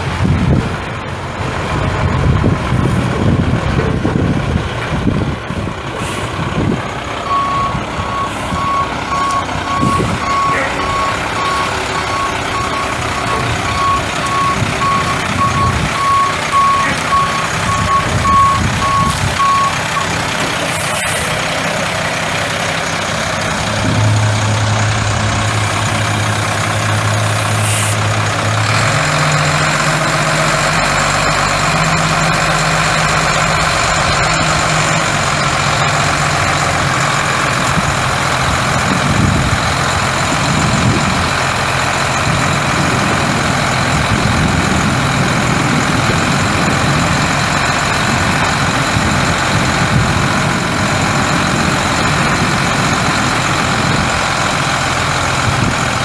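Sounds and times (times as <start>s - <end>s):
diesel engine running: 0.0s - 56.0s
truck reverse alarm beeping: 7.2s - 21.9s.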